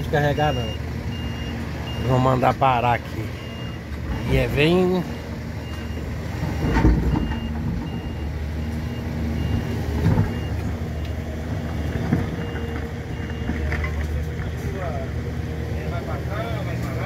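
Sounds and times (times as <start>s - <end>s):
diesel engine running: 0.0s - 17.0s
reversing alarm beeps: 0.3s - 2.4s, 3.3s - 14.8s.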